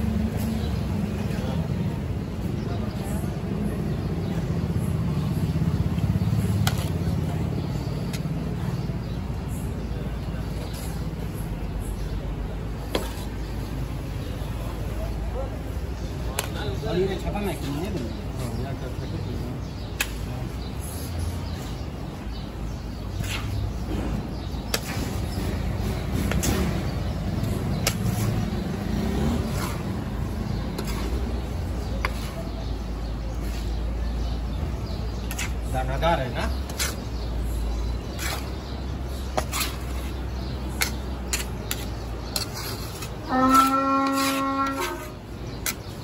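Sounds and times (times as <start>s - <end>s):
metal ladle scraping metal pot: 40.8s - 45.9s.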